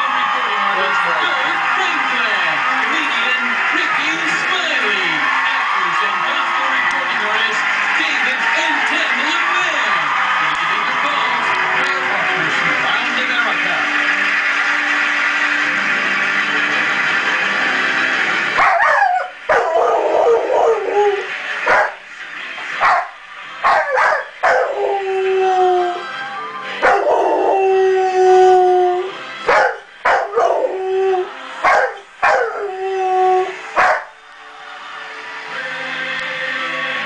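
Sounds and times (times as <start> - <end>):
television music: 0.0 - 37.0
dog yipping: 18.6 - 19.7, 33.8 - 34.1
dog howling: 18.6 - 22.0, 22.8 - 26.1, 26.8 - 34.1.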